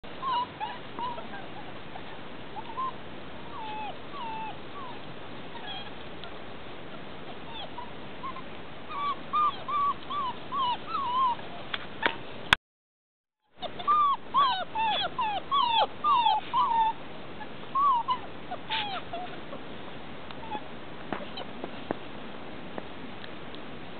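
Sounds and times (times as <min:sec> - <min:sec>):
puppies whimpering: 0:00.2 - 0:06.0, 0:07.3 - 0:11.7, 0:13.6 - 0:19.6, 0:20.4 - 0:21.5.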